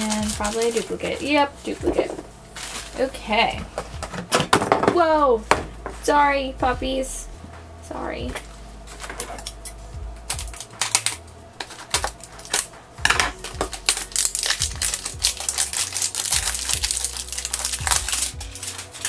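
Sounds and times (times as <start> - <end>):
plastic shrink wrap crinkling: 0.0 - 4.2, 8.4 - 19.0.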